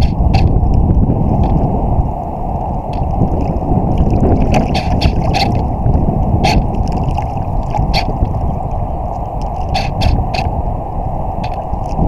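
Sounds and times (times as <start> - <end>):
waves slapping against hull: 0.0 - 12.0
wind on microphone: 0.0 - 12.0
sharp water splashes: 2.7 - 10.6.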